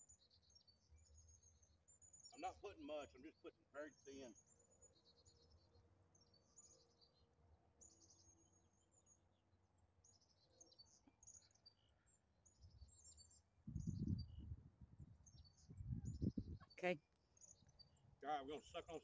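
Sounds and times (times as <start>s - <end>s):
faint birds chirping: 0.0s - 19.0s.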